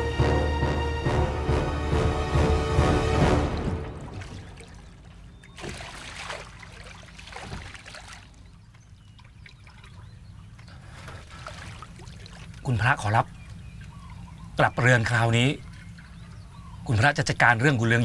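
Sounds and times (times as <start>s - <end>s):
music: 0.0s - 4.2s
water lapping around boat: 2.2s - 18.0s
soft oar splashes: 3.4s - 16.8s.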